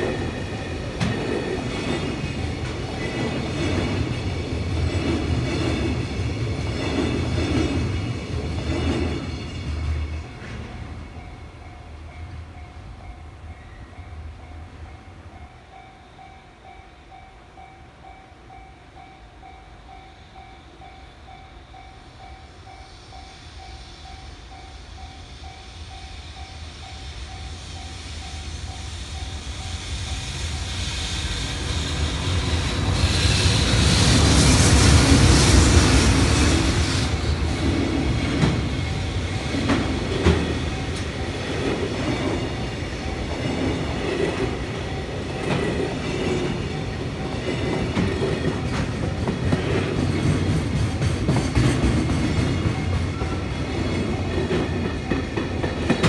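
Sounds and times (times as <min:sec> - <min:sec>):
train wheels clacking: 0:00.0 - 0:12.7, 0:22.7 - 0:56.0
level crossing warning bell: 0:38.8 - 0:48.6.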